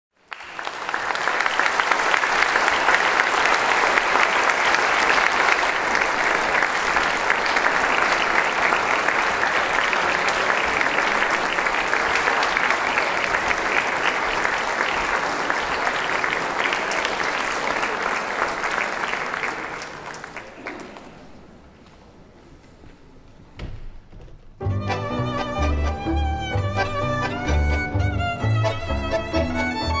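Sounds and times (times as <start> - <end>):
audience applauding: 0.2 - 21.6.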